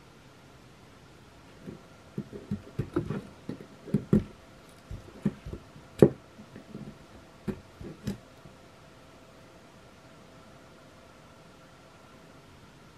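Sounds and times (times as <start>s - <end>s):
metal tool scraping wood: 1.6s - 8.2s.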